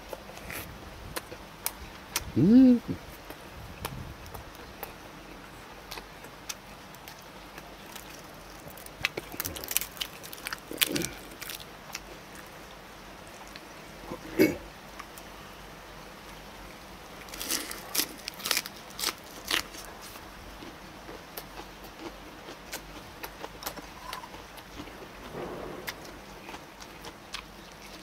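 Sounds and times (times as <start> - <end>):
crunching and chewing cabbage leaf: 5.8 - 12.7, 17.2 - 28.0.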